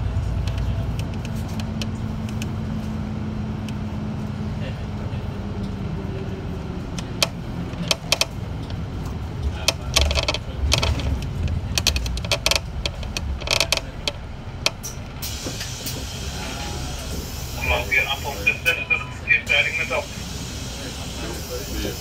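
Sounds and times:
bus engine hum: 0.0 - 22.0
irregular clicks and rattles: 7.0 - 15.2.

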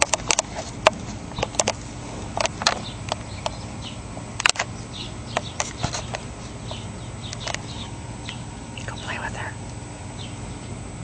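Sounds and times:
sharp crackles and snaps: 0.0 - 3.6, 4.4 - 8.4
faint bird chirps: 4.7 - 9.6.

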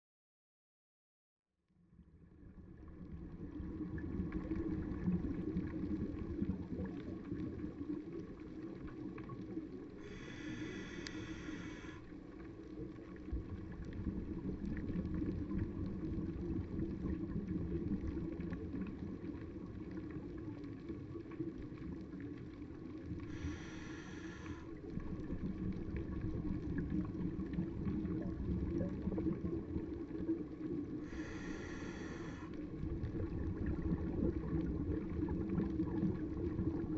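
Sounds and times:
low underwater rumble: 1.8 - 36.9
regulator bubbling hiss: 10.0 - 12.1, 23.2 - 24.9, 30.9 - 36.9.

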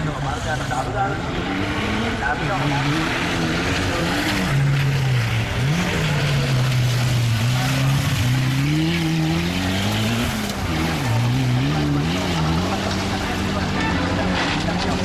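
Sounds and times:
car engine revving hard: 0.0 - 15.0.

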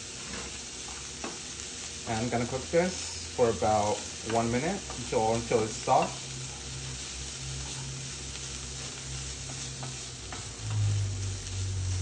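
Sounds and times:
vegetables sizzling in a pan: 0.0 - 12.0
spatula scraping a pan: 2.5 - 12.0.

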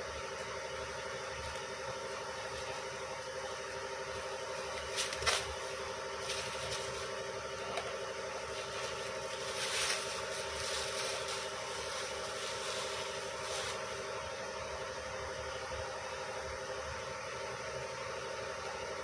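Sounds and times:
engine drone: 0.0 - 19.0
plastic wrapping rustling and tearing: 4.7 - 7.2, 8.5 - 14.0.

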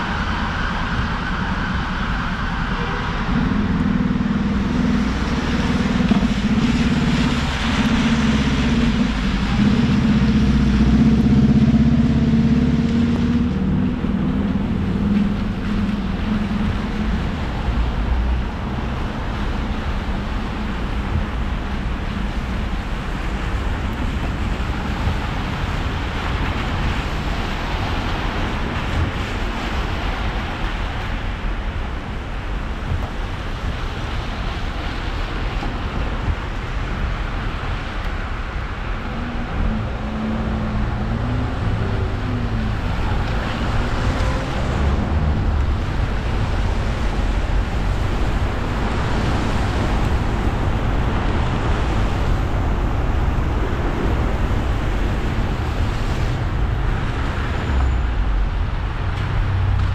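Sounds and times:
car engine hum: 0.0 - 59.9
tyres hissing on wet road: 0.0 - 59.9.

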